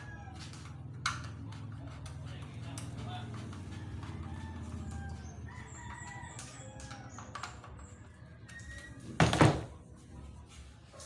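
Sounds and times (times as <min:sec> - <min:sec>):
rooster crowing: 0:00.0 - 0:00.8, 0:03.7 - 0:07.3.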